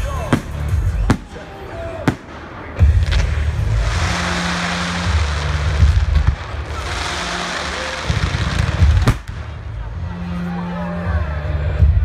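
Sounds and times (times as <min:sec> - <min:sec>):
fireworks crackling: 0:00.0 - 0:10.2
firework bangs: 0:00.3 - 0:09.9.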